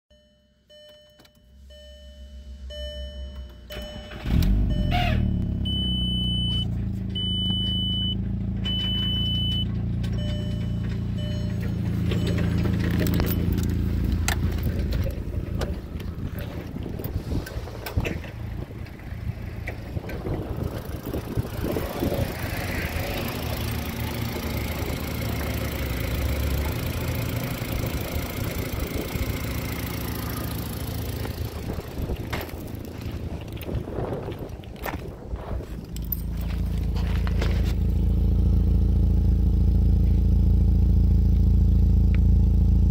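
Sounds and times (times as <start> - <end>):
dashboard warning chime beeping: 0.1 - 13.9
car engine starting and idling: 0.1 - 42.9
footsteps on gravel: 32.2 - 38.2.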